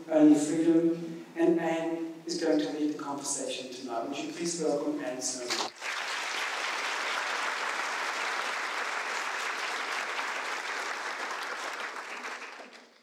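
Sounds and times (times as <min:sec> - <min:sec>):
audience applauding: 0:05.5 - 0:13.0.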